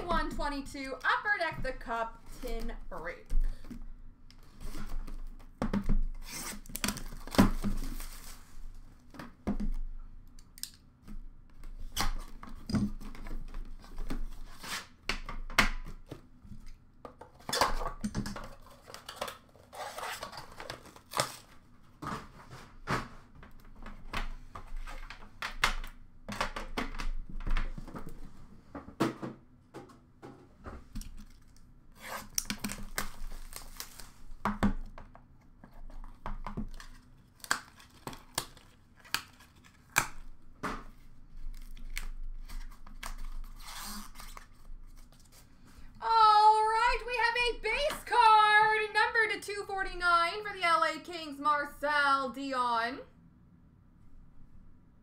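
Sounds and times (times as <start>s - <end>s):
plastic wrap tearing: 31.2s - 34.2s, 36.6s - 40.2s, 41.5s - 45.3s.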